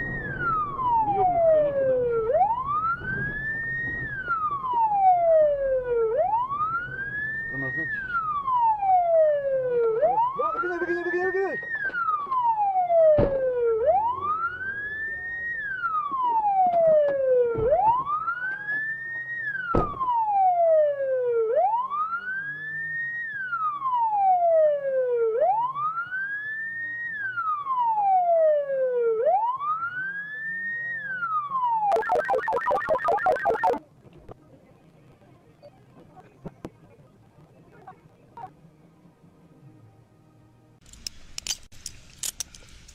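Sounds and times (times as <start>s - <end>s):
police siren wailing: 0.0s - 33.8s
siren fast warble: 31.7s - 33.8s.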